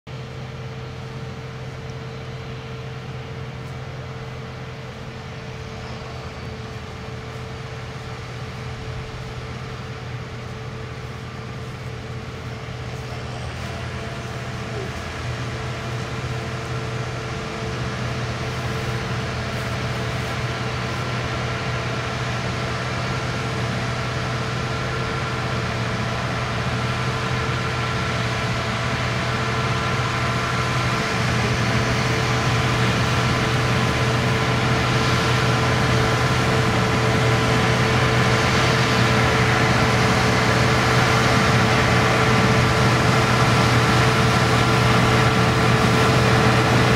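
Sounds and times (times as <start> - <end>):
combine harvester droning: 0.1 - 46.9
whining tones: 2.4 - 22.2.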